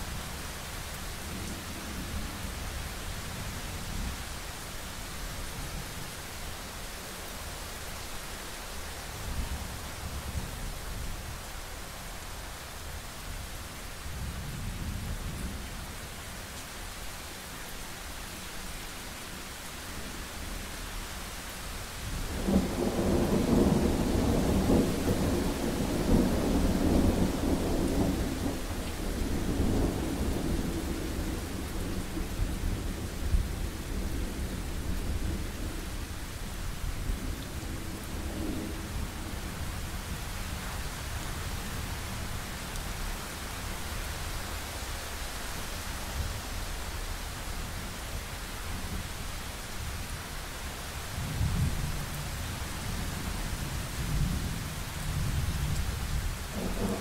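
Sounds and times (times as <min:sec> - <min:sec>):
steady rain hiss: 0:00.0 - 0:57.0
thunder rumbling: 0:22.3 - 0:36.0, 0:53.6 - 0:57.0.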